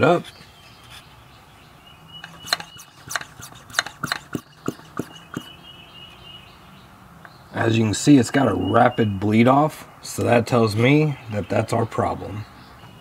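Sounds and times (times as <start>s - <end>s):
hand vacuum pump clicking: 2.2s - 5.5s.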